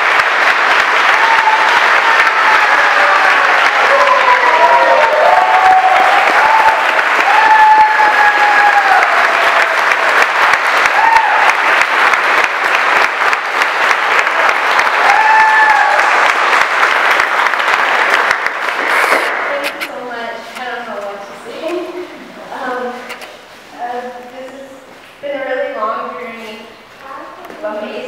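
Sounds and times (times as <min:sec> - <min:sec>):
crowd clapping: 0:00.0 - 0:19.8
long whoops: 0:01.0 - 0:09.8, 0:10.8 - 0:11.6, 0:15.0 - 0:16.2.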